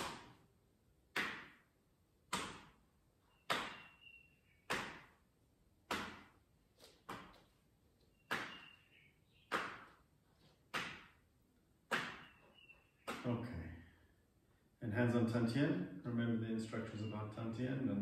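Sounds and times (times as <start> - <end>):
hands smacking buttocks: 1.1 - 2.9, 4.6 - 5.2, 5.8 - 7.7, 8.3 - 8.7, 9.5 - 12.3.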